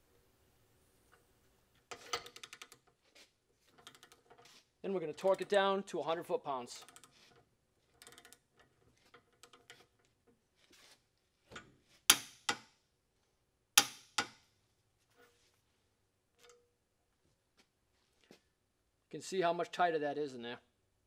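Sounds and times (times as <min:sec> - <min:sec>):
torque wrench clicking: 0:08.0 - 0:08.4.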